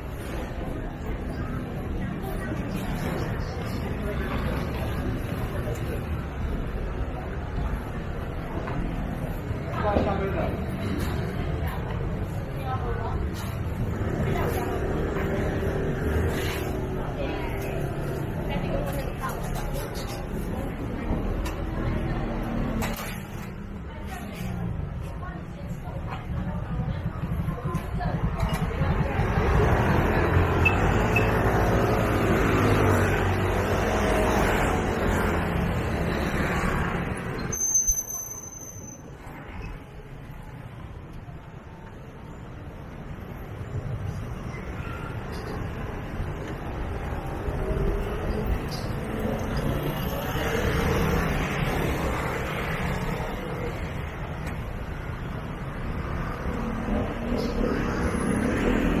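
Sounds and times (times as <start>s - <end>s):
crowd murmur: 0.0s - 59.0s
traffic rumble: 0.0s - 59.0s
motor vehicle running: 24.5s - 37.5s
thin high squeal: 37.5s - 39.1s.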